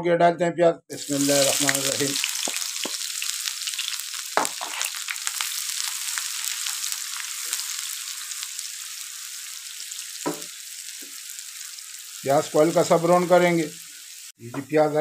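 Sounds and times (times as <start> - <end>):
onions sizzling in hot oil: 1.0 - 15.0.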